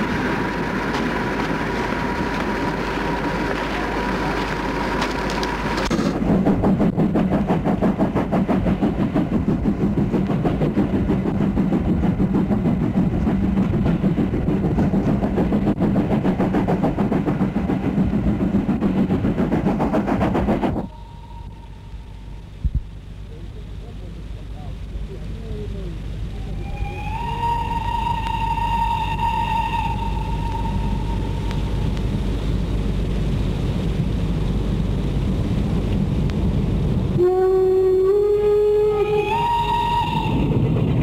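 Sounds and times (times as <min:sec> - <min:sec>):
regular beat of train wheels: 0:00.0 - 0:22.9, 0:26.5 - 0:33.3
steam train rumble: 0:00.0 - 0:41.0.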